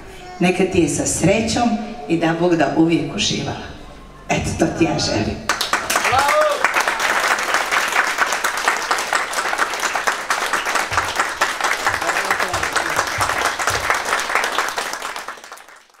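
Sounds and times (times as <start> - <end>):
people applauding: 5.5 - 16.0.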